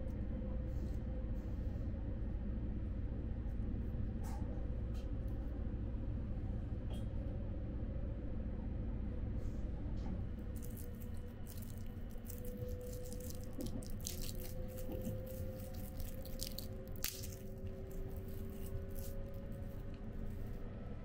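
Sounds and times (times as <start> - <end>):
plastic wrapper crinkling and tearing: 10.6 - 20.4.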